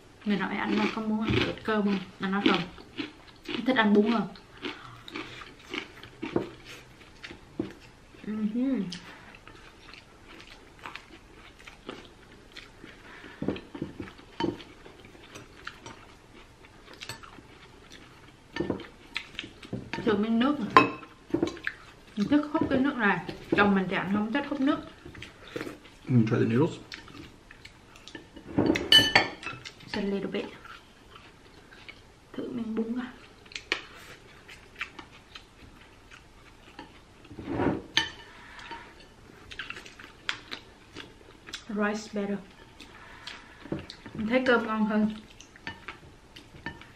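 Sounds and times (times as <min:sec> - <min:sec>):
chewing: 0:00.6 - 0:20.1, 0:21.4 - 0:22.5, 0:24.8 - 0:32.1, 0:33.1 - 0:37.4, 0:38.0 - 0:41.7, 0:42.5 - 0:46.9
chopsticks clinking ceramic bowls: 0:28.2 - 0:29.6.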